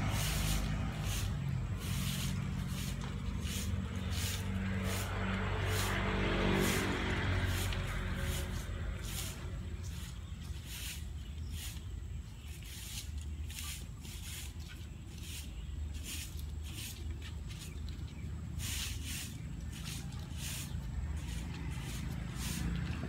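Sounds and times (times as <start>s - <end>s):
steady low rumble: 0.0s - 14.5s.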